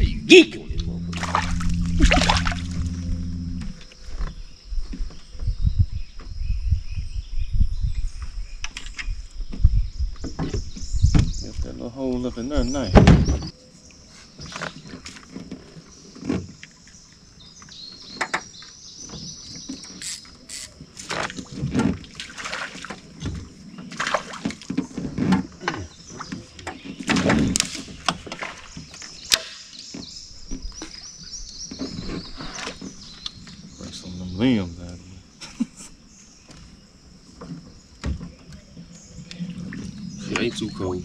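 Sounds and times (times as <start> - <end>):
high-pitched swamp drone: 0.0 - 3.9, 39.2 - 41.0.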